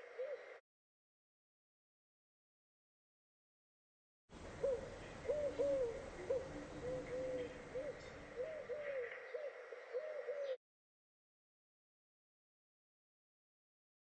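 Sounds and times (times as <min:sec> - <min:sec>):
pigeons cooing: 0:00.0 - 0:00.6, 0:04.6 - 0:10.6.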